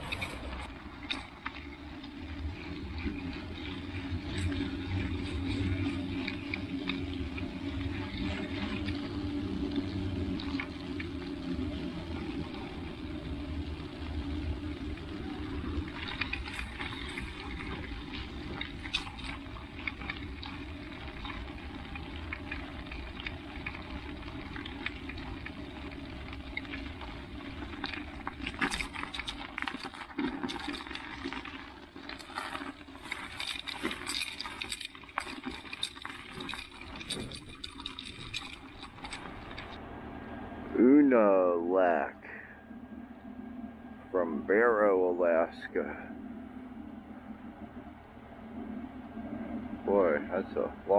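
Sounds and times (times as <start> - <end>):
tyres crunching over snow: 0.0 - 39.8.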